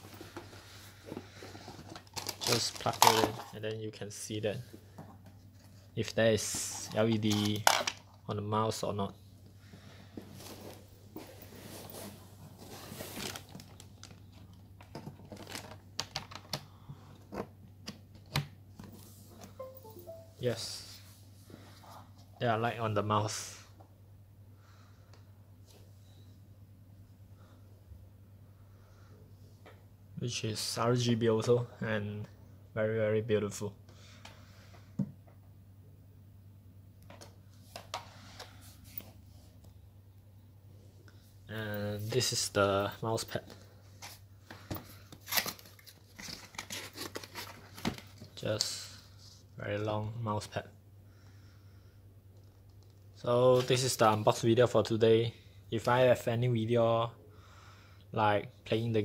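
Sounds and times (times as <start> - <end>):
plastic wrapping clicks and rustles: 1.7 - 3.6, 13.2 - 16.6, 44.6 - 48.4.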